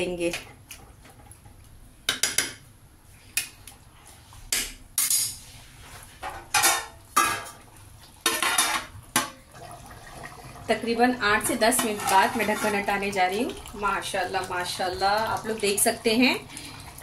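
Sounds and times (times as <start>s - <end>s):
metal spatula scraping a pan: 11.6s - 12.9s.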